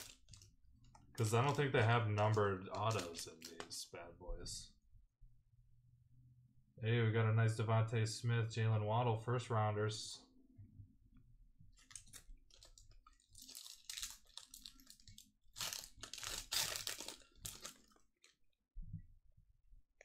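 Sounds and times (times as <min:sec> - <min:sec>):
foil wrapper crinkling and tearing: 0:00.0 - 0:00.5, 0:01.1 - 0:03.8, 0:11.8 - 0:18.4.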